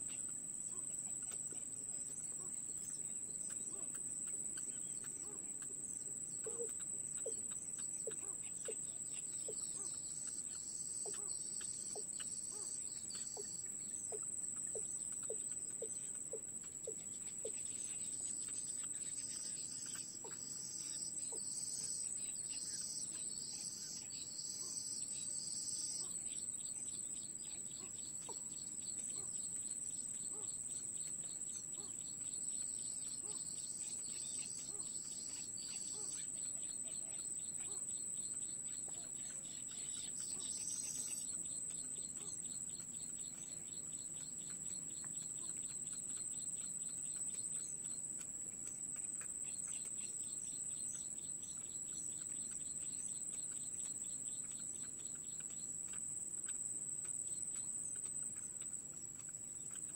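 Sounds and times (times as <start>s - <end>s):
faint fast ticking: 0.1s - 59.9s
high-pitched insect drone: 6.4s - 48.0s.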